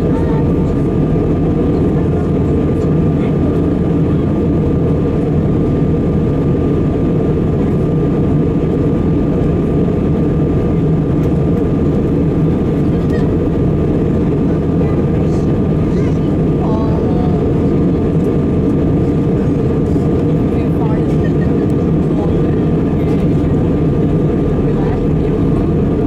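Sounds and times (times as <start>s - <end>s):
airflow over fuselage: 0.0s - 26.0s
jet engines roaring: 0.0s - 26.0s.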